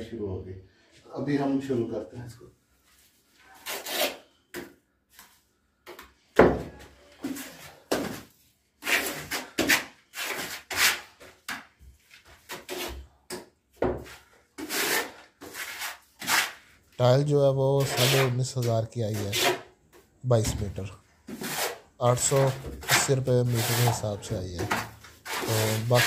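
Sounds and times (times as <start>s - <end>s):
trowel scraping adhesive on wall: 8.8s - 11.7s, 12.4s - 13.4s, 14.0s - 16.8s, 17.7s - 19.7s, 21.3s - 26.0s.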